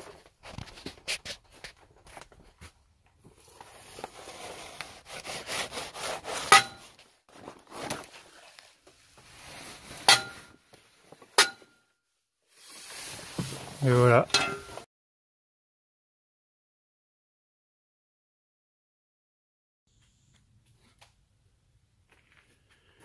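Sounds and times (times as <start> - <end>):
scraping on rusty metal: 4.0 - 7.0, 9.4 - 10.6.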